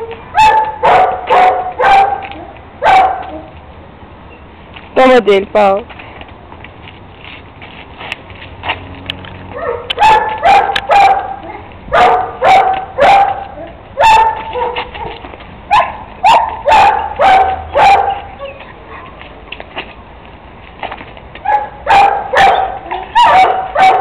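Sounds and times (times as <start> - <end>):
puppy barking: 0.3 - 3.5, 9.5 - 19.2, 21.4 - 24.0.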